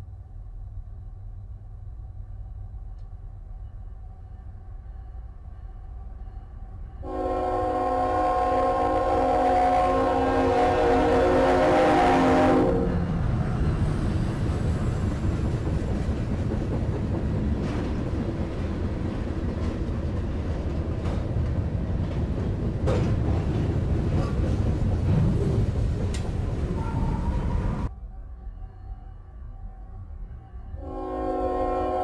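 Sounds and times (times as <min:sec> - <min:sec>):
train wheels rumbling on rail: 0:00.0 - 0:27.9
train horn: 0:07.0 - 0:13.1, 0:30.8 - 0:32.0.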